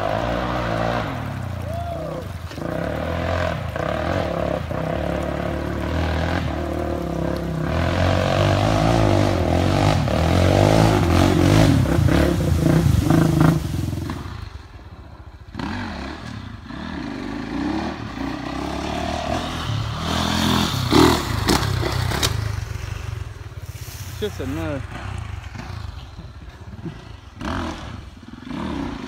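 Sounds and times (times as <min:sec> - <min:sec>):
atv engines revving: 0:00.0 - 0:29.0
water splashing: 0:00.1 - 0:14.7.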